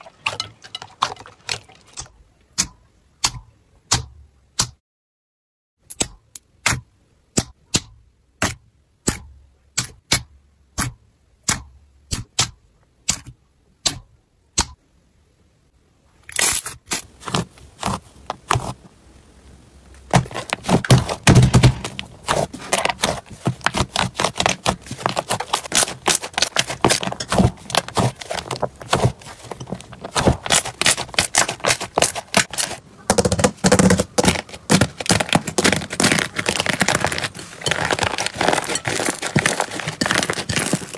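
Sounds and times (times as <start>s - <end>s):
slime crackling and squishing: 16.3s - 18.9s, 19.9s - 40.9s.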